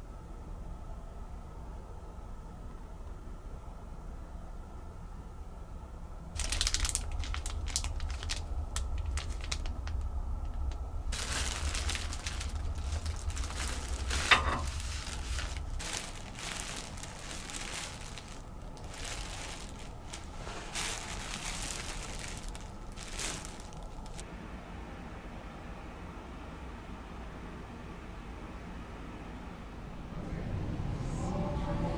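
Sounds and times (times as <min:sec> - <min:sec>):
low hum: 0:00.0 - 0:31.9
plastic wrapping crinkling: 0:06.4 - 0:24.2.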